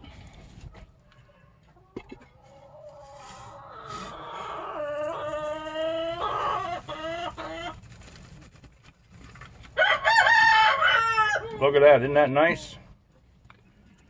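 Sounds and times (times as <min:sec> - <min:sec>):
chickens clucking: 0:00.0 - 0:09.8.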